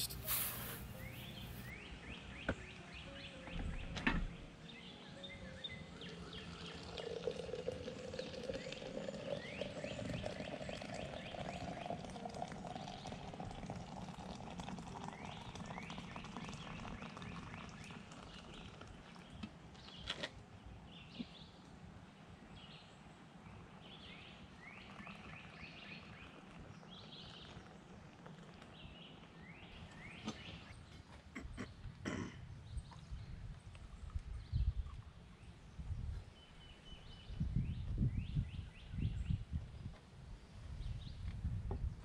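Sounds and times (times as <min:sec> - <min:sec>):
birds chirping: 0:00.0 - 0:12.4
water pouring into glass: 0:06.0 - 0:19.3.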